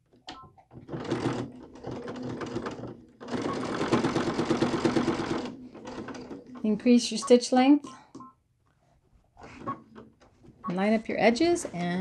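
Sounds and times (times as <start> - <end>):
sewing machine stitching: 0.7 - 6.7.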